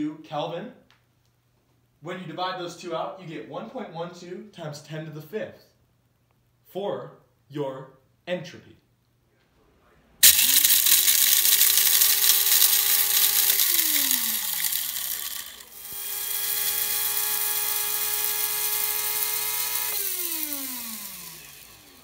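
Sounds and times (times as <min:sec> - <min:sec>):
coffee grinder motor with rattling beans: 0:10.2 - 0:22.0.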